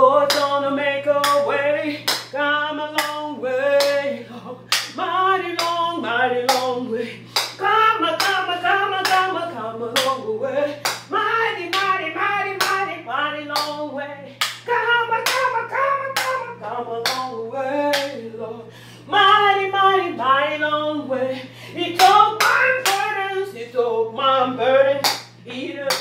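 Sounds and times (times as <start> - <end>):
gospel singing: 0.0 - 26.0
hand claps: 0.3 - 0.5, 1.2 - 1.4, 2.0 - 2.3, 3.0 - 3.2, 3.8 - 4.0, 4.7 - 5.0, 5.6 - 5.8, 6.5 - 6.7, 7.4 - 7.6, 8.2 - 8.4, 9.0 - 9.3, 10.0 - 10.2, 10.8 - 11.1, 11.7 - 12.0, 12.6 - 12.8, 13.5 - 13.8, 14.4 - 15.5, 16.1 - 17.3, 17.9 - 18.2, 22.0 - 23.1, 25.0 - 26.0.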